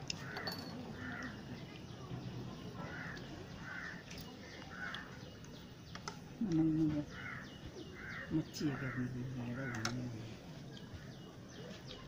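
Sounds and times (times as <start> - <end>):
crows cawing: 0.2 - 1.4, 2.8 - 4.0, 4.7 - 5.1, 7.1 - 10.0.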